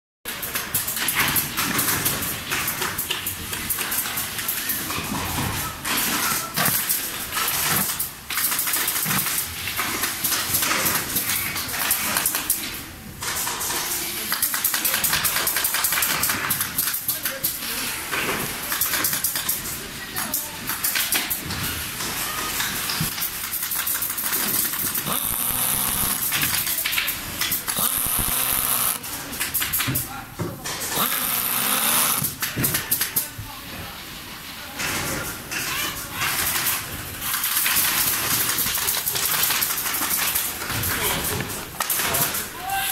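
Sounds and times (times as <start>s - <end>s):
pneumatic screwdriver hissing: 23.6s - 26.6s, 27.5s - 29.0s, 31.0s - 32.3s.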